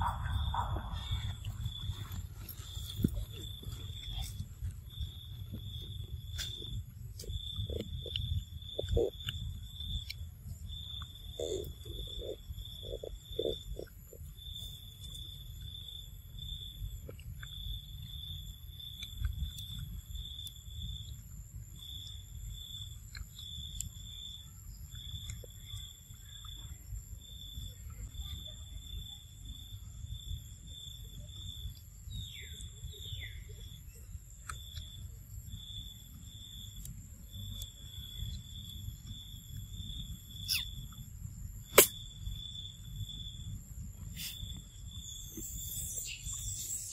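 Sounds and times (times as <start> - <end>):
low rumble: 0.0 - 8.8
insect chirping: 0.0 - 46.9.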